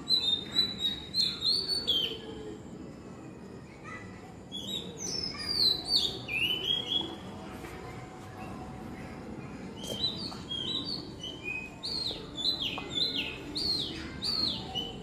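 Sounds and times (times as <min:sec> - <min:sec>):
bird singing whistled notes: 0:00.0 - 0:02.4, 0:04.5 - 0:07.2, 0:09.8 - 0:15.0.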